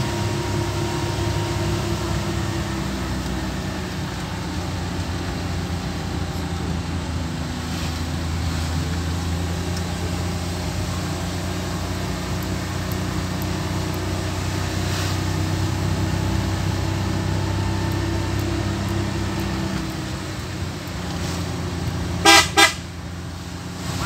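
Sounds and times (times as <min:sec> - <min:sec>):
car engine and road noise: 0:00.0 - 0:24.0
car horn toots: 0:22.2 - 0:23.0.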